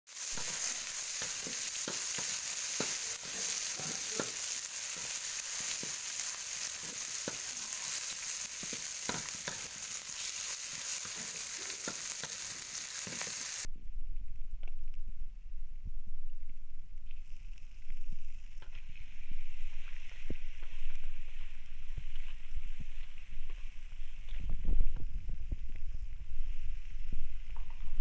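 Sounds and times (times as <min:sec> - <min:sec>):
spatula scraping a wok: 0:00.1 - 0:13.7
vegetables sizzling in hot oil: 0:00.1 - 0:13.7.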